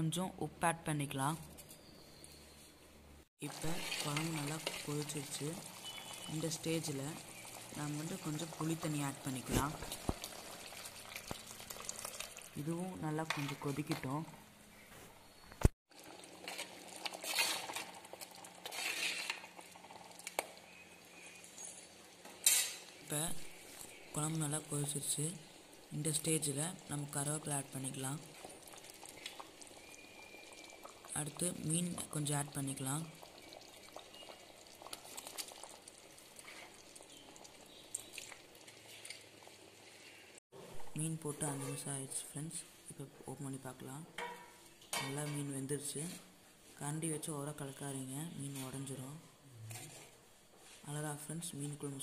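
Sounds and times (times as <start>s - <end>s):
gravy simmering with pops: 3.4s - 14.2s, 15.6s - 40.4s
metal ladle scraping clay pot: 16.4s - 17.9s, 18.6s - 19.5s.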